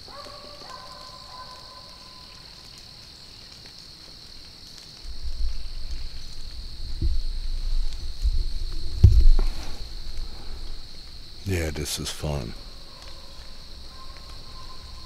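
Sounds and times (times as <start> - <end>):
crickets and insects droning: 0.0 - 15.0
faint dog howl: 0.1 - 2.4, 12.8 - 15.0.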